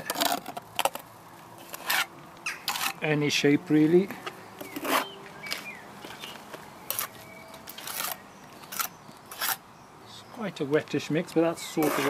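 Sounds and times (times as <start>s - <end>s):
trowel scraping and slapping render: 0.0s - 1.0s, 1.6s - 3.1s, 4.6s - 6.3s, 6.9s - 9.6s, 11.6s - 12.0s.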